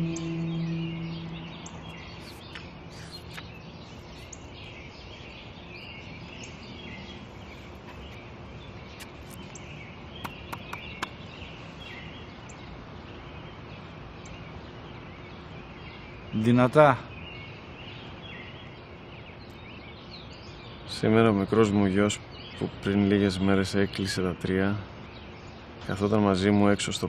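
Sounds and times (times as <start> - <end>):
low sustained musical tone: 0.0 - 2.5
birds chirping: 0.0 - 27.0
steady background hiss: 0.0 - 27.0.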